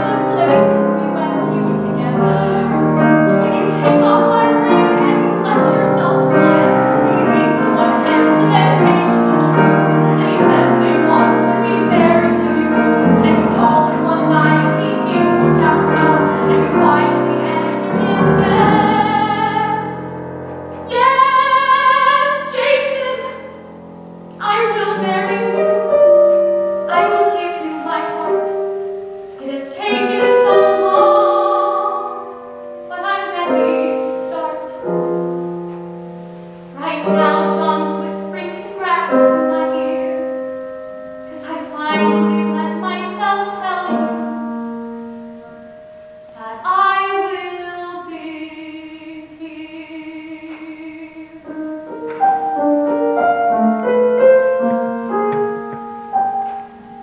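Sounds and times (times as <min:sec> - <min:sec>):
woman singing: 0:00.0 - 0:20.2, 0:20.8 - 0:23.6, 0:24.3 - 0:28.6, 0:29.4 - 0:35.0, 0:36.8 - 0:40.4, 0:41.2 - 0:44.4, 0:46.4 - 0:51.5
grand piano chords: 0:00.0 - 0:57.0.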